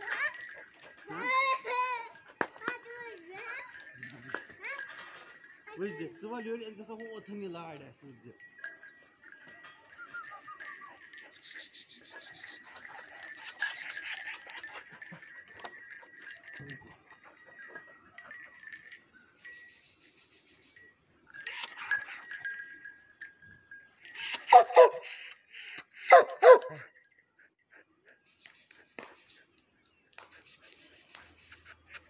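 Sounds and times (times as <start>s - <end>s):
metallic jingling and ticking: 0.0s - 29.5s
dog barking: 24.4s - 25.1s, 26.0s - 26.9s.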